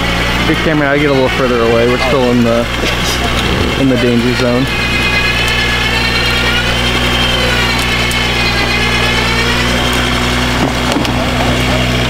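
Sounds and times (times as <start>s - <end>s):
high whine rising and falling: 0.0s - 12.0s
vehicle engine running: 0.0s - 12.0s.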